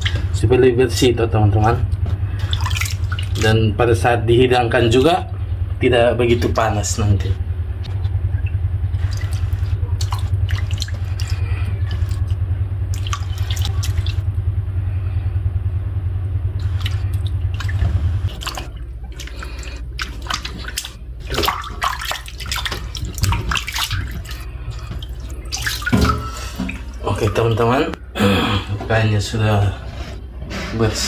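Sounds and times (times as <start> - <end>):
hands sloshing water in basin: 0.0 - 0.5, 1.8 - 3.8, 8.0 - 14.3, 16.5 - 28.0
low hum: 0.0 - 31.0.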